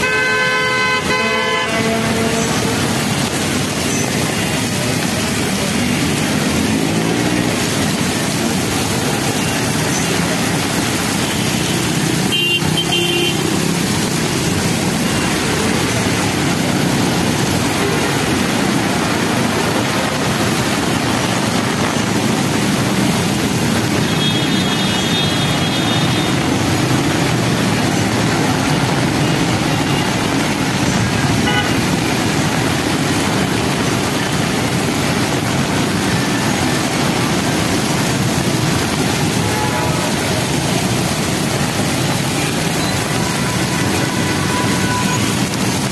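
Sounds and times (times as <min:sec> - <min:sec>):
vehicle horn: 0:00.0 - 0:03.0, 0:12.2 - 0:13.5, 0:31.4 - 0:31.8, 0:39.4 - 0:40.3, 0:43.2 - 0:45.4
heavy rain pouring: 0:00.0 - 0:45.9
traffic on a flooded road: 0:00.0 - 0:45.9.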